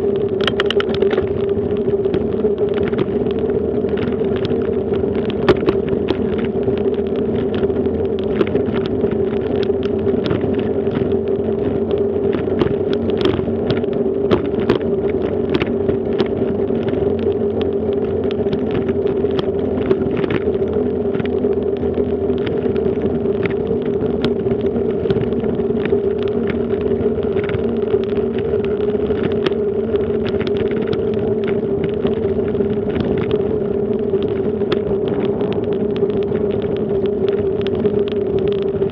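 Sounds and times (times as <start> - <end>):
bicycle rolling on brick paving: 0.0 - 38.9
bicycle rattling clicks: 0.1 - 38.9.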